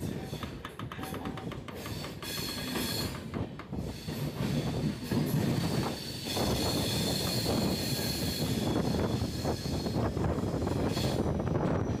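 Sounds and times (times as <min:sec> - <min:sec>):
train wheels rumbling on rails: 0:00.0 - 0:12.0
high-pitched wheel squeal: 0:05.8 - 0:12.0.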